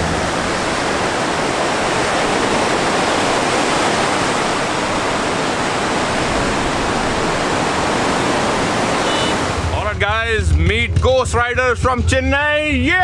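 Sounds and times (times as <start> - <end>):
surf breaking on beach: 0.0 - 9.9.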